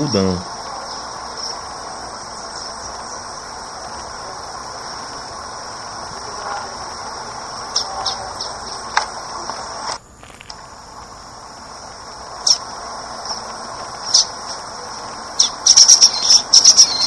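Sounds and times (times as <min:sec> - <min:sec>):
insect chorus: 0:00.0 - 0:17.0.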